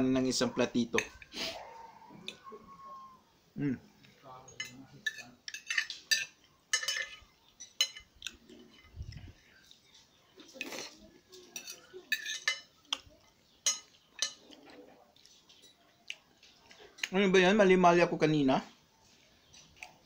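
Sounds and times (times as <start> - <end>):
cutlery clinking on plate: 4.4 - 8.9, 10.6 - 15.8.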